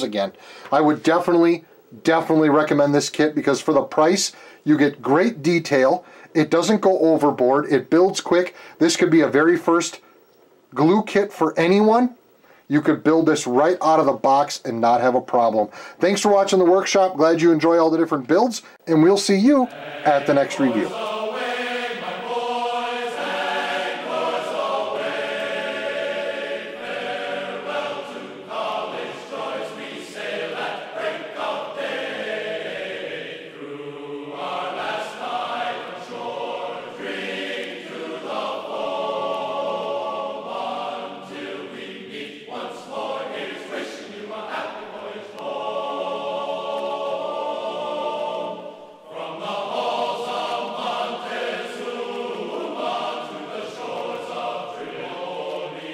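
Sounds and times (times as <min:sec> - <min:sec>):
choir singing long notes: 0:19.6 - 0:55.9.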